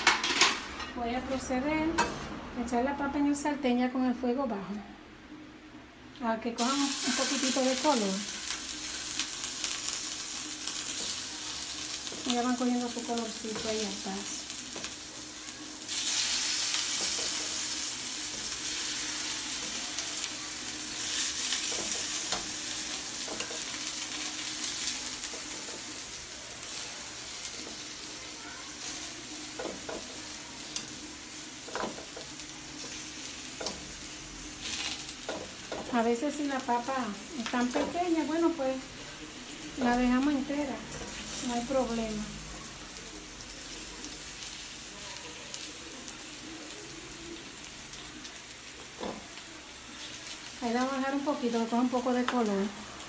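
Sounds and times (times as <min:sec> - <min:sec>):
potatoes sizzling in frying pan: 0:06.6 - 0:53.0.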